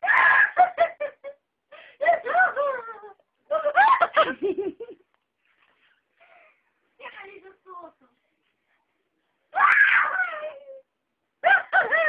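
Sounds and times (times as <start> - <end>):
girl laughing and giggling: 0.2 - 1.4, 2.0 - 5.1.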